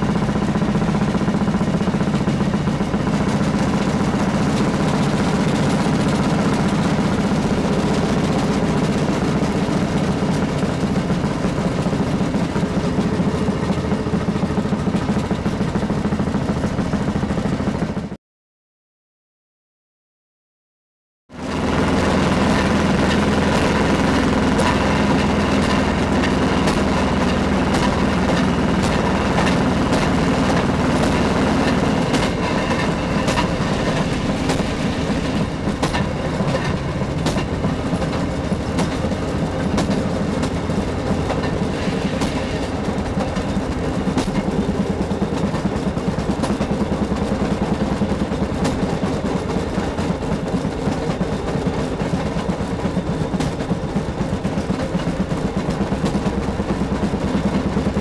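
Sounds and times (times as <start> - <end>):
two-stroke engine running: 0.0 - 18.2, 21.3 - 58.0
wheels clicking over rails: 0.0 - 18.2, 21.3 - 58.0
rough rattle: 22.6 - 58.0.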